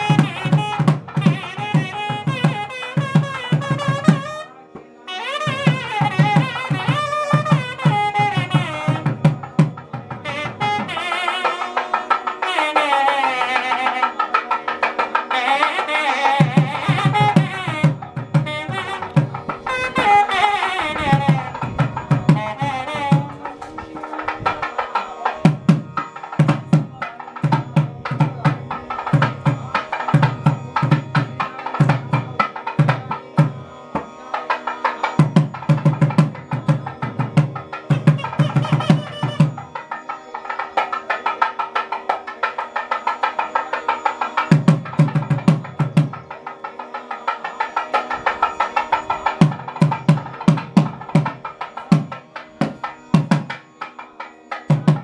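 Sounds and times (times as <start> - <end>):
fast drumming: 0.0 - 4.4, 15.6 - 33.6, 35.0 - 39.9, 43.6 - 46.6, 47.7 - 55.0
reed instrument melody: 0.0 - 55.0
steady drone: 3.8 - 55.0.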